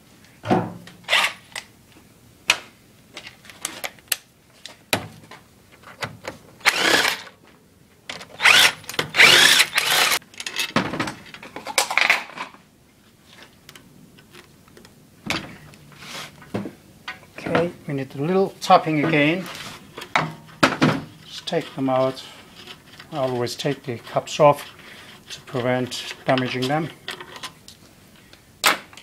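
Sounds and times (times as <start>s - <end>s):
noisy bursts: 8.4s - 10.2s.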